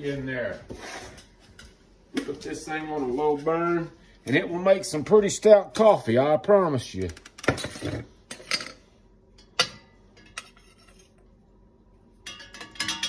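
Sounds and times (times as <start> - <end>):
metal kitchenware knocking: 12.2 - 13.0.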